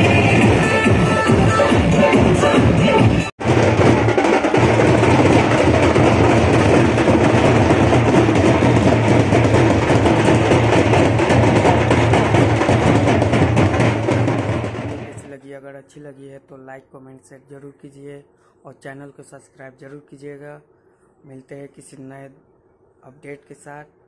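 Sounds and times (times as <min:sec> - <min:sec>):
loud music with heavy drumming: 0:00.0 - 0:15.2.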